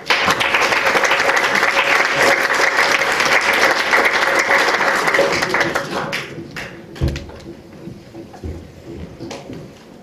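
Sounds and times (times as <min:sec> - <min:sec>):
audience applauding: 0:00.0 - 0:07.3.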